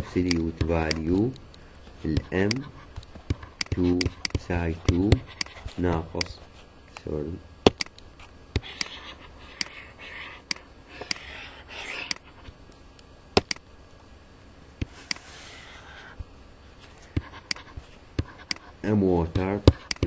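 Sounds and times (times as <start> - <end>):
pen scratching across tablet: 2.0 - 6.4, 8.2 - 12.5, 17.0 - 18.7
stylus tapping on tablet: 3.2 - 6.3.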